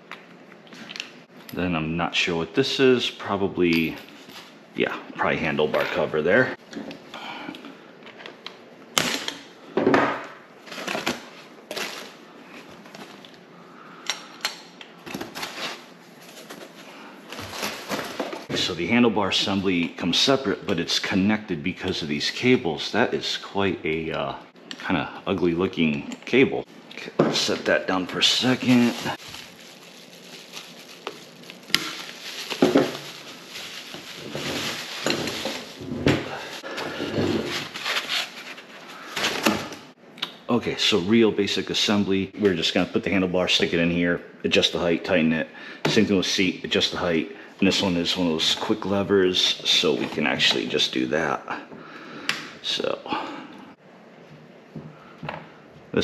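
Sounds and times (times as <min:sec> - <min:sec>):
foam sheet rustling and scraping: 0:28.4 - 0:39.5.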